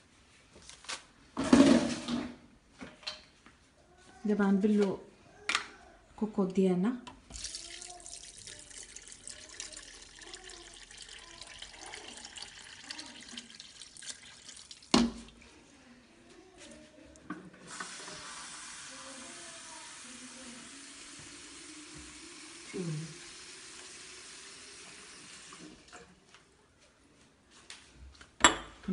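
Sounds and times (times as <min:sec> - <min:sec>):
water pouring and splashing: 0:07.3 - 0:15.4, 0:17.7 - 0:26.0.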